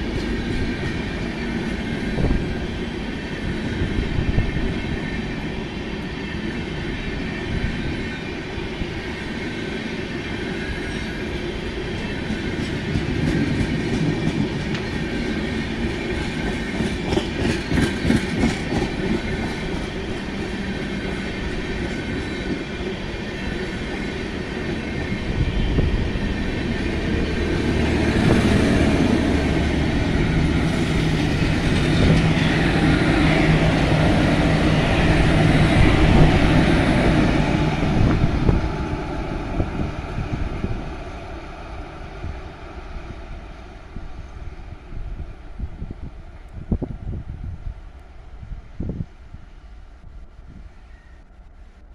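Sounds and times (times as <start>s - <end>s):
train wheels clicking over rail joints: 12.0s - 22.9s, 26.3s - 38.6s.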